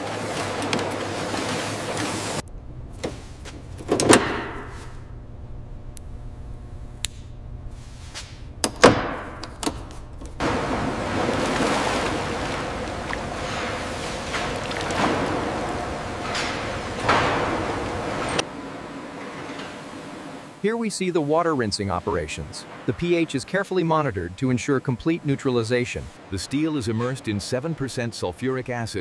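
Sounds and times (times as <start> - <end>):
metallic clanks: 13.3 - 18.5.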